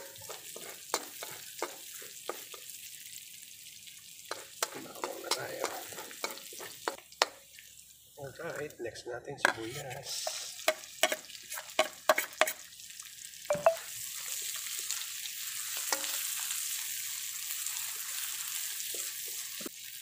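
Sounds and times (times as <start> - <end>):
onions sizzling in hot oil: 0.0 - 8.8, 9.7 - 20.0
metal spoon knocking: 13.5 - 13.8.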